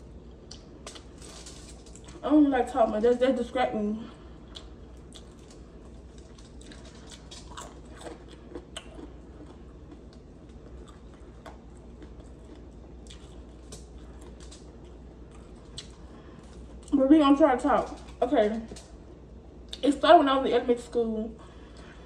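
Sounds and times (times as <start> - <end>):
person chewing: 0.2 - 2.2, 4.1 - 17.0
crispy breading crackling: 0.3 - 20.0.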